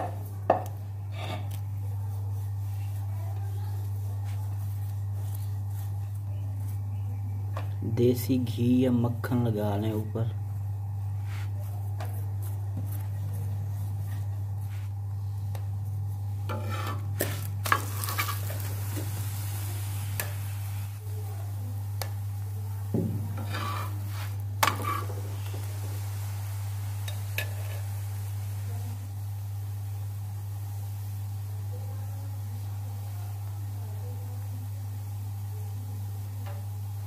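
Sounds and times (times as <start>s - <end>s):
fat sizzling: 0.0s - 37.0s
steady low hum: 0.0s - 37.0s
spoon scraping a hot iron griddle: 16.4s - 20.8s, 23.3s - 25.6s, 27.0s - 28.1s.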